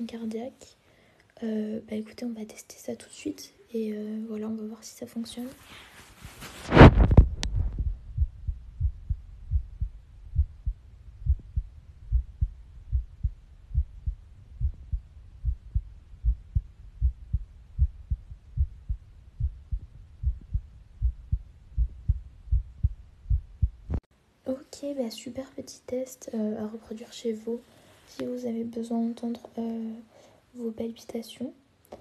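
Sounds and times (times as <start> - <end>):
phone rubbing on clothing: 5.6 - 7.3
muffled heartbeat thumps: 6.6 - 24.0.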